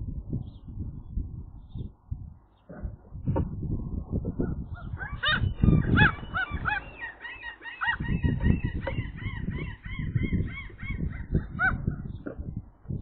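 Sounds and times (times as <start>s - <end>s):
gull alarm calls: 4.4s - 12.0s.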